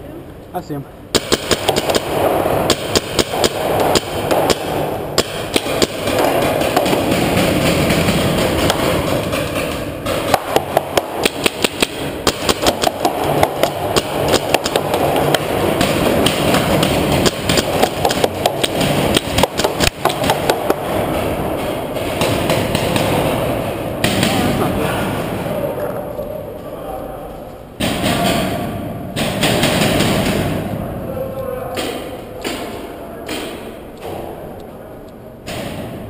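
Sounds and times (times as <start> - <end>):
paintball markers firing: 1.1 - 24.6, 29.2 - 30.8
steady din: 1.1 - 27.0, 27.7 - 34.6.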